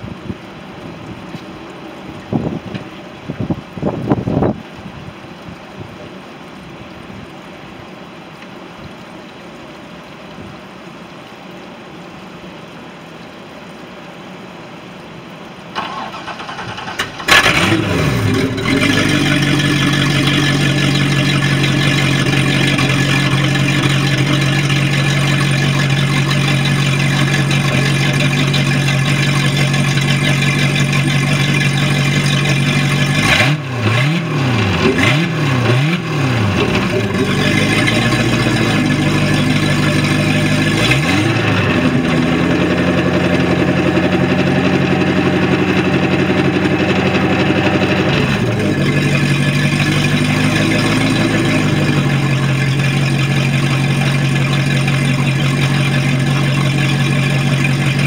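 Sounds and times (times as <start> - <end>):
boat engine idling and revving: 15.8 - 58.0.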